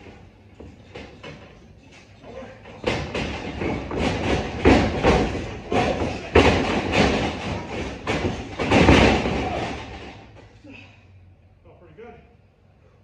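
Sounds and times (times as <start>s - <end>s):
wrestling ring rattling: 0.0s - 10.7s
heavy thuds on ring boards: 2.3s - 10.4s.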